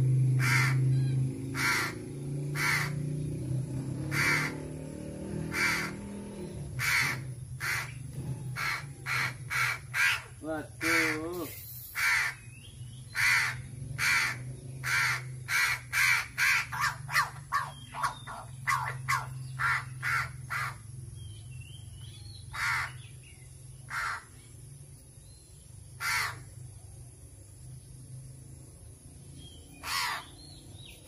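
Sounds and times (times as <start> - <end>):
crow cawing: 0.4 - 0.9, 1.5 - 3.0, 4.1 - 4.8, 5.4 - 6.1, 6.8 - 11.4, 12.0 - 12.4, 13.1 - 20.8, 22.5 - 23.1, 23.9 - 24.4, 26.0 - 26.5, 29.8 - 30.4.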